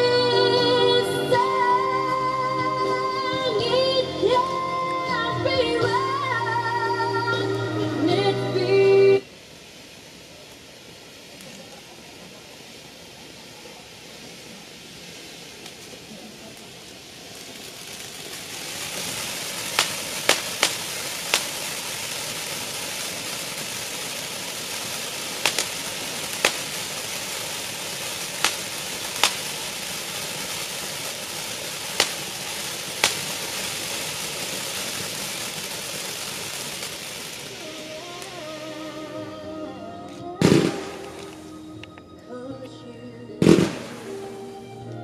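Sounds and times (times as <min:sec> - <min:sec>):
firework fountains hissing: 0:00.0 - 0:42.5, 0:43.2 - 0:45.0
sharp firework cracks: 0:13.6 - 0:39.3, 0:40.1 - 0:41.6, 0:43.4 - 0:44.9.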